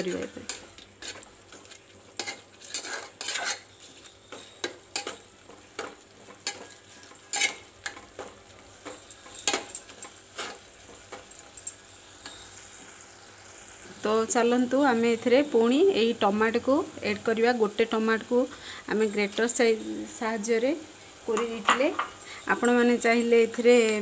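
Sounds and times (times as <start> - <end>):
food sizzling: 0.0 - 24.0
metal spoon scraping pot: 0.4 - 5.2, 6.4 - 8.0.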